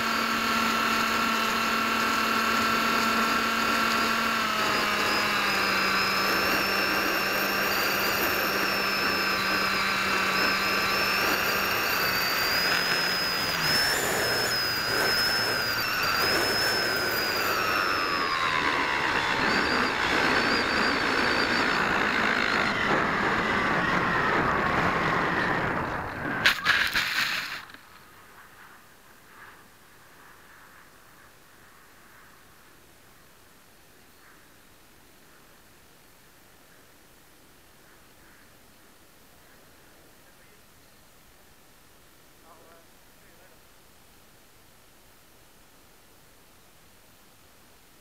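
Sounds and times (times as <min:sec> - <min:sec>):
electric motor and propeller whine: 0:00.0 - 0:32.6.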